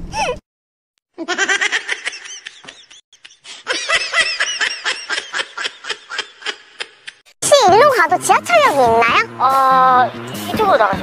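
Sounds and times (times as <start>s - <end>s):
people laughing hard: 1.2s - 7.2s.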